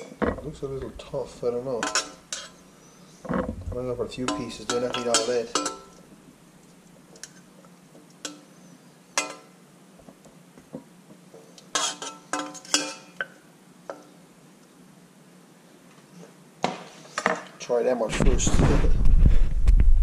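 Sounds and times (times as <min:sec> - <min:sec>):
metal utensil clinking on plate: 0:01.8 - 0:02.6, 0:04.2 - 0:06.0, 0:09.2 - 0:09.5, 0:11.8 - 0:13.3.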